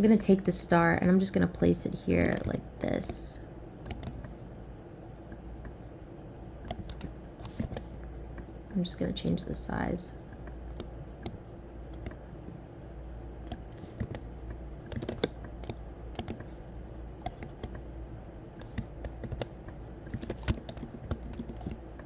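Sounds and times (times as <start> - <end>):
low steady hum: 0.0 - 22.0
keyboard and mouse clicks: 2.2 - 3.2, 3.8 - 4.4, 5.1 - 8.6, 10.3 - 12.3, 13.4 - 16.6, 17.2 - 17.9, 18.6 - 22.0.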